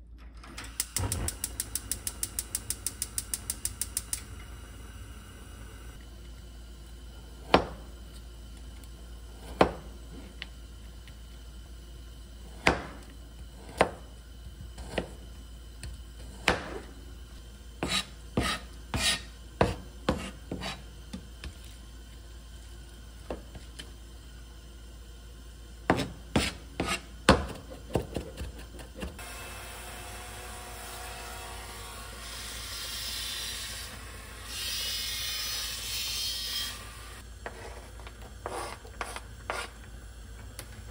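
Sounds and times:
knife chopping on cutting board: 0:17.8 - 0:20.8, 0:25.9 - 0:29.2.

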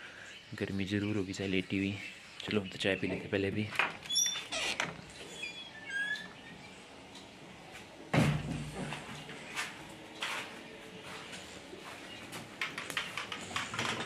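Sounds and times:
heavy thump: 0:08.1 - 0:08.8.

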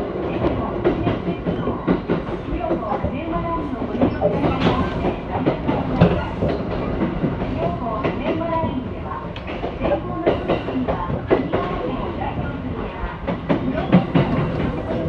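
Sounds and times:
train rumble: 0:00.0 - 0:15.0.

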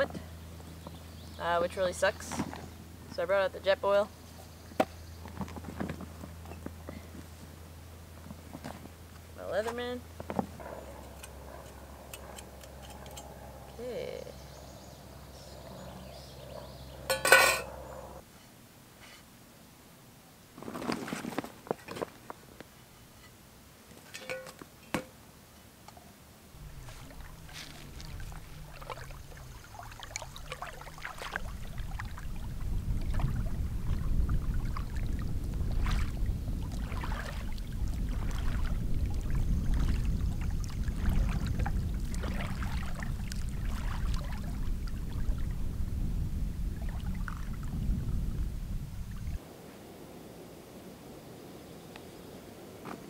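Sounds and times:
water splashing and sloshing: 0:26.6 - 0:45.9, 0:46.7 - 0:47.8
wind rumble on microphone: 0:26.6 - 0:53.0.

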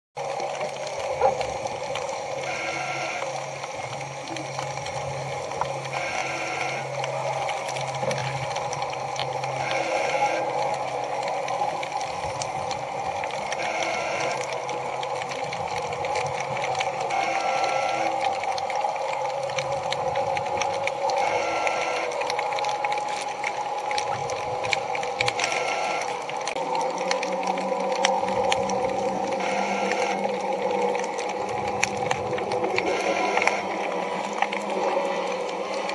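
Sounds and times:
sustained synth tone: 0:01.2 - 0:11.2, 0:25.3 - 0:35.9.

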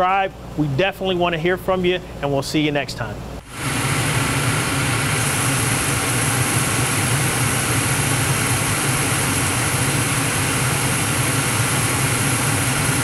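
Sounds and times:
gas flames roaring: 0:03.4 - 0:13.0.

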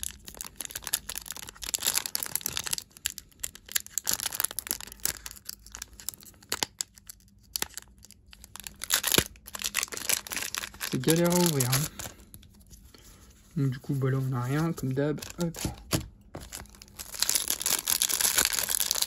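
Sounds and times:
foil wrapper crinkling and tearing: 0:00.0 - 0:13.0, 0:13.6 - 0:19.0.

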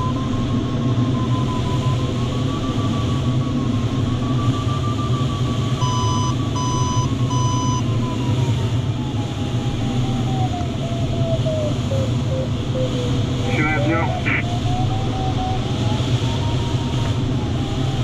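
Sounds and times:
variometer tone: 0:04.5 - 0:08.1, 0:11.5 - 0:16.0.

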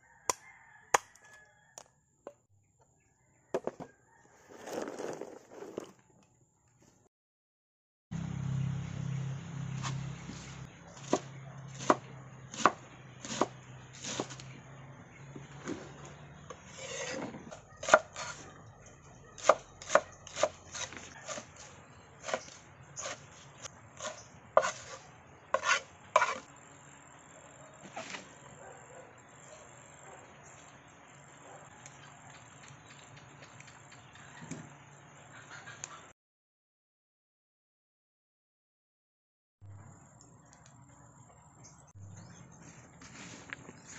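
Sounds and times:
knife chopping on wooden board: 0:11.0 - 0:14.4, 0:16.5 - 0:18.4, 0:19.4 - 0:23.3, 0:24.0 - 0:25.0, 0:25.6 - 0:26.4.

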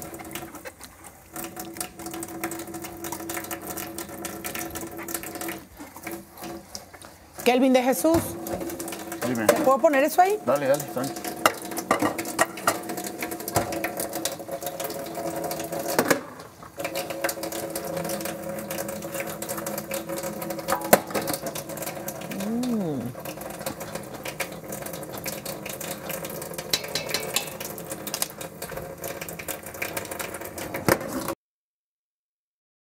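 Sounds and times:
dishes and utensils clinking: 0:26.7 - 0:27.6.

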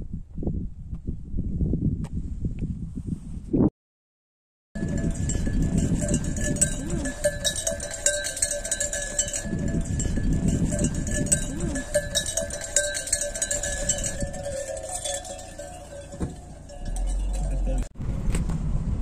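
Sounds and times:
low rumble: 0:04.8 - 0:12.2, 0:13.2 - 0:19.0
sheep bells clanking: 0:04.8 - 0:17.9.

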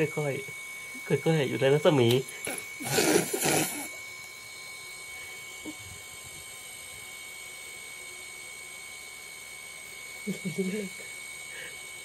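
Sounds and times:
faint hum: 0:00.0 - 0:07.0
thin high whine: 0:00.0 - 0:12.0.

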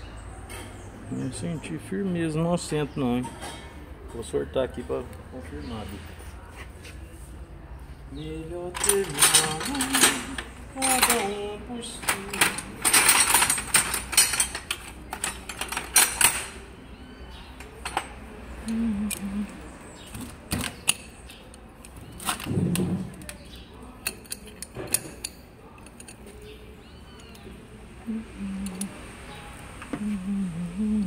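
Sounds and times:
hand tools clattering in metal toolbox: 0:08.7 - 0:16.6.

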